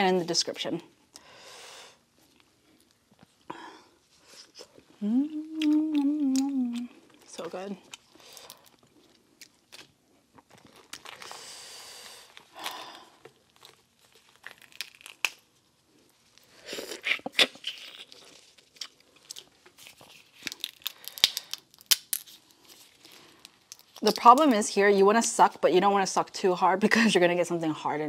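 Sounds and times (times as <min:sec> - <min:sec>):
crawfish shells snapping and tearing: 0:12.3 - 0:15.5, 0:17.0 - 0:22.4, 0:23.4 - 0:24.5.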